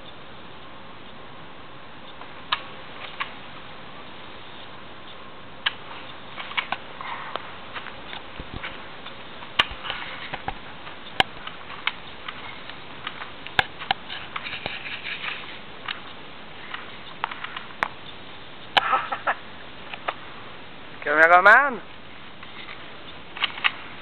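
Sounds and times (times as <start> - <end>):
twigs clicking and cracking: 5.6 - 20.3.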